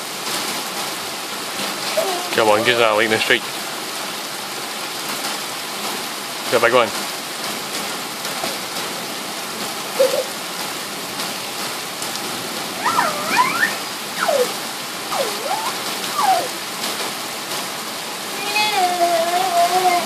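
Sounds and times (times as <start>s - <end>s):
heavy rain: 0.0s - 20.0s
short high sliding calls: 12.8s - 16.6s.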